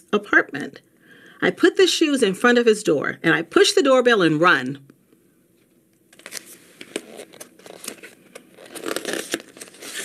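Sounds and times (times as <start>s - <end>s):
paper pages rustling: 5.6s - 10.0s.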